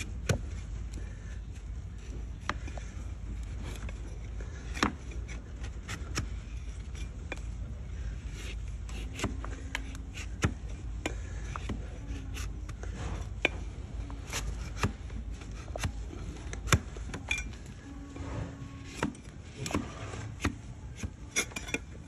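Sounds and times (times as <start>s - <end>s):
blade cutting hoof: 0.0s - 22.0s.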